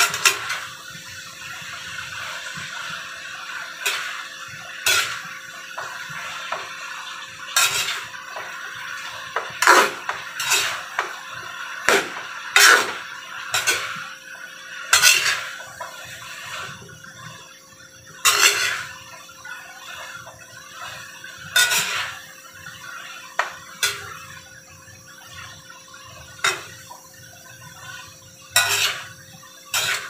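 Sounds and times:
metal spatula scraping wok: 0.0s - 0.8s, 1.9s - 14.1s, 14.8s - 16.8s, 18.2s - 24.4s, 27.8s - 30.0s.

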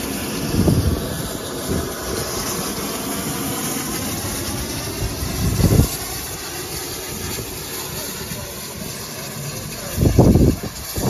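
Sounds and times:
steam locomotive hissing: 0.0s - 11.0s
low rumble: 0.1s - 6.3s.

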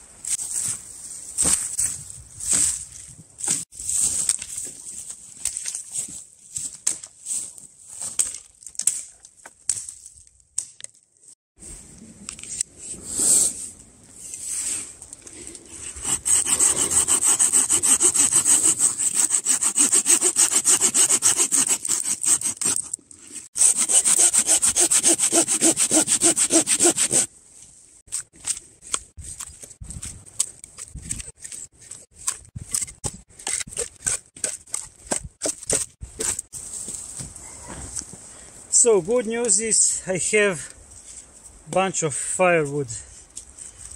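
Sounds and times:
hand saw cutting wood: 15.7s - 27.3s.

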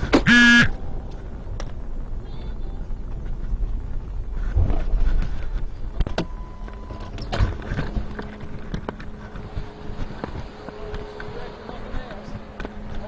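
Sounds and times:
car engine and road rumble: 0.0s - 13.0s
brief steady tone: 0.3s - 0.8s, 6.2s - 7.3s.

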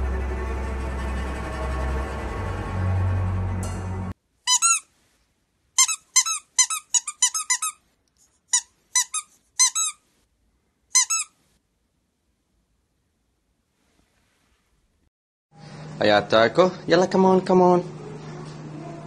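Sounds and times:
music: 0.0s - 4.2s, 17.9s - 19.0s
squeaky toy squeaks: 4.5s - 4.9s, 5.8s - 7.8s, 8.5s - 10.0s, 10.9s - 11.4s.

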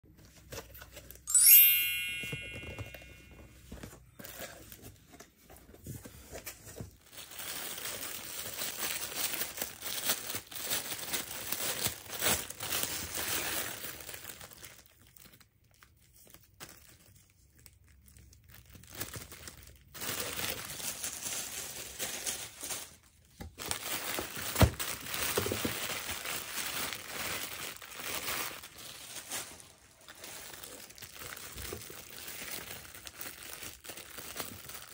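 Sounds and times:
bright chime: 1.3s - 3.6s
plastic bags crinkling: 6.8s - 34.9s.

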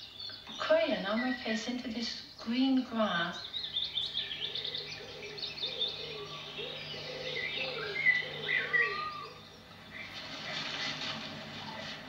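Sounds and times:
birds chirping and whistling: 0.0s - 12.0s
low repeating bird call: 3.0s - 10.2s.

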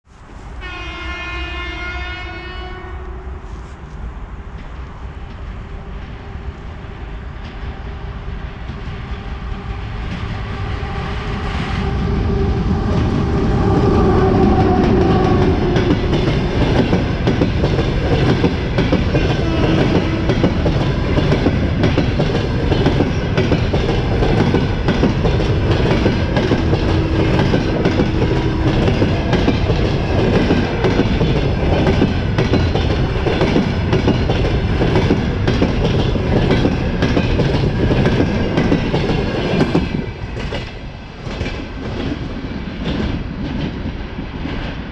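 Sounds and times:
train horn: 0.6s - 3.5s, 11.8s - 16.8s, 19.2s - 21.0s, 26.6s - 29.7s
train wheels clickety-clack: 3.9s - 44.9s
locomotive rumble passing: 4.1s - 44.4s.

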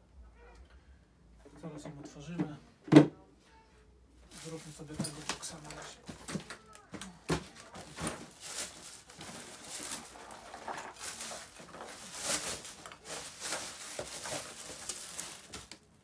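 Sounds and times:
packaging rustling and scraping: 4.3s - 6.6s, 7.4s - 16.0s.

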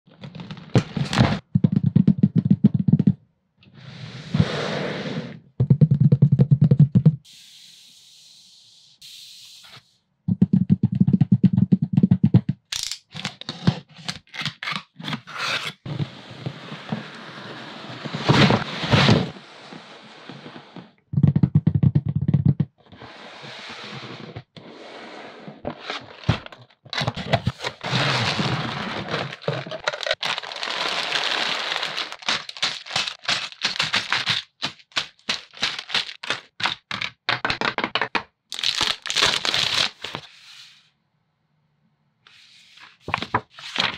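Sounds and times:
plastic bricks crackling and scraping: 0.1s - 3.2s, 25.7s - 40.3s
plastic bricks clicking together: 12.7s - 13.4s, 32.0s - 39.1s.

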